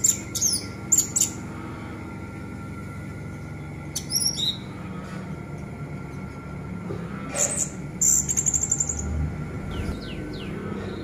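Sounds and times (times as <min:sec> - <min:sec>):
bird singing high phrases: 0:00.0 - 0:01.4, 0:03.7 - 0:04.7, 0:07.4 - 0:10.6.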